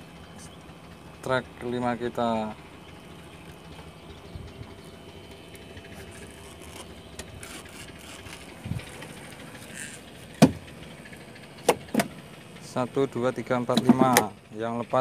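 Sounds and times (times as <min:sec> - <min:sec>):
low steady hum: 0:00.0 - 0:15.0
sharp knock on deck planks: 0:10.4 - 0:10.6.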